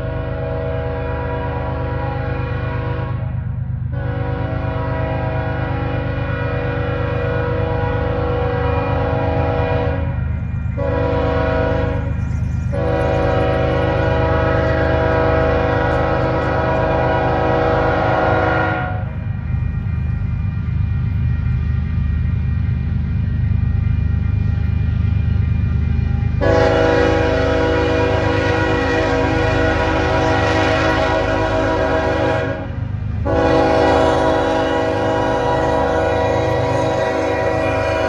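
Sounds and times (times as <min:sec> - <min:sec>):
locomotive air horn blasts: 0:00.0 - 0:03.3, 0:03.9 - 0:10.2, 0:10.8 - 0:19.2, 0:26.4 - 0:38.0.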